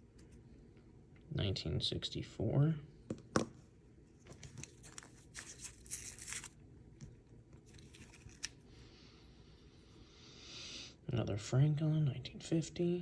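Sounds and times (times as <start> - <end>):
paper wrapper rustling and tearing: 4.3 - 6.6, 7.6 - 8.6.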